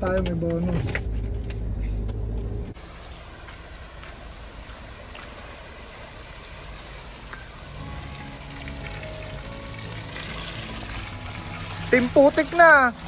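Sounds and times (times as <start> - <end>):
engine drone: 0.8 - 13.0
tyres rushing through mud and water: 2.8 - 13.0.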